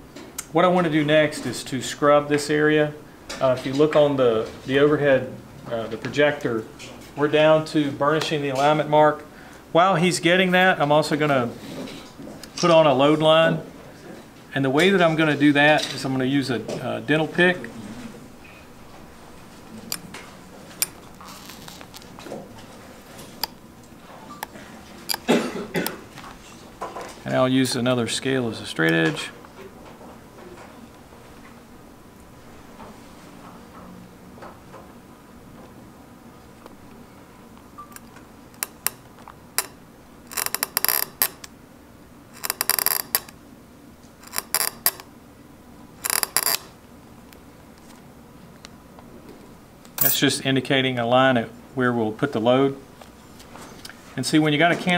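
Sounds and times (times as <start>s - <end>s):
metal pick scratching and clicking: 25.1s - 25.3s, 38.0s - 41.5s, 42.4s - 43.4s, 44.2s - 45.1s, 46.0s - 46.7s.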